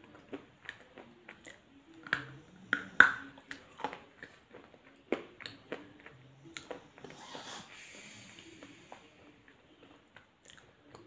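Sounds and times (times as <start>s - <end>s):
sharp mouth clicks and smacks: 0.0s - 7.1s, 10.2s - 11.0s
person chewing food: 0.0s - 8.0s, 8.6s - 11.0s.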